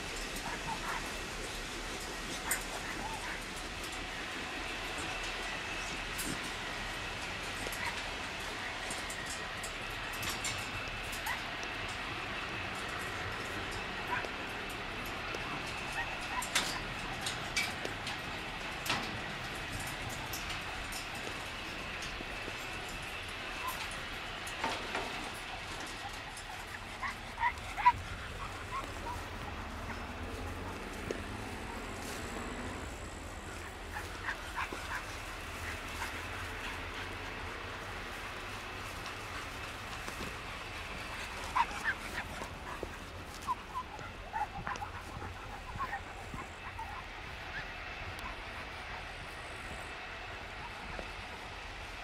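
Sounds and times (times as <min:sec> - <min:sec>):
dog whimpering and yipping: 0:41.4 - 0:47.7.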